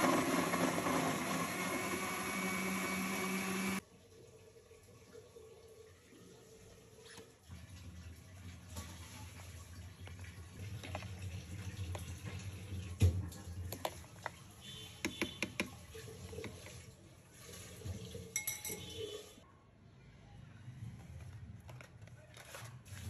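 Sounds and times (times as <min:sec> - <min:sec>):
metal fork clinking in blender jar: 0:18.4 - 0:19.0.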